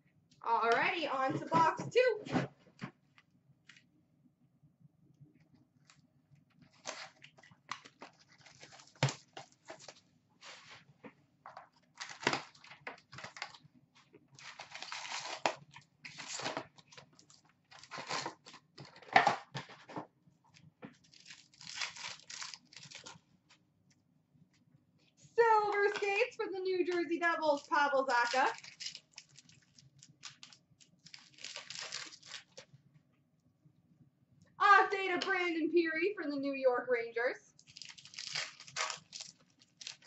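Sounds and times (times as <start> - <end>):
packaging tearing and rustling: 6.7 - 10.6, 11.8 - 13.6, 14.4 - 19.9, 21.0 - 23.2, 27.5 - 32.7, 37.6 - 40.0.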